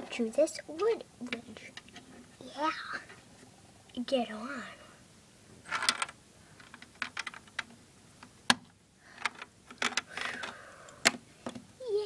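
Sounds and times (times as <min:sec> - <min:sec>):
plastic toy pieces clicking: 0:05.7 - 0:07.7, 0:09.2 - 0:11.2.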